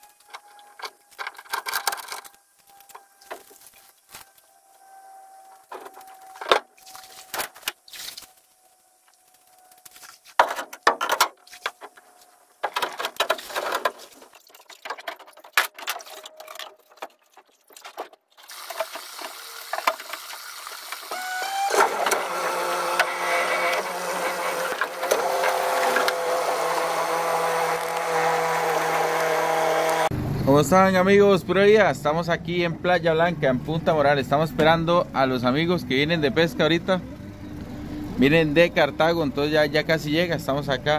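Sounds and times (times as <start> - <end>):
outboard motor running: 21.1 - 30.2.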